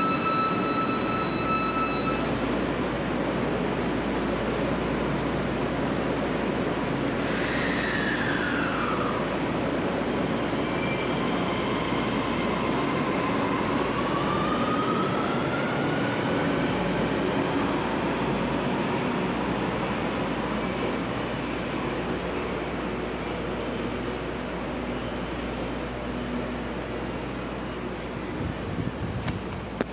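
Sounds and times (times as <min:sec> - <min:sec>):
wheels rumbling on rails: 0:26.0 - 0:29.9.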